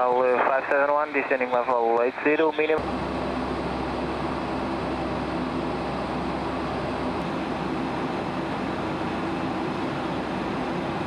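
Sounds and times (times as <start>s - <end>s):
airliner cabin engine noise: 0.0s - 11.0s
low hum: 2.7s - 11.0s.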